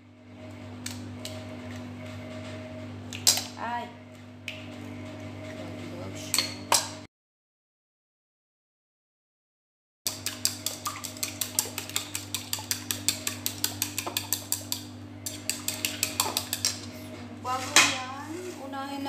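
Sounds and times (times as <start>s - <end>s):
chopsticks clicking against bowl: 10.1s - 16.8s
steady low hum: 10.1s - 19.0s.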